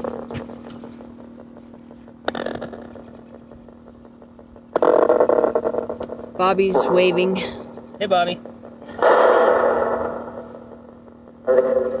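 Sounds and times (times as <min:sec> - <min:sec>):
choppy radio static: 0:00.0 - 0:12.0
steady hum: 0:00.0 - 0:12.0.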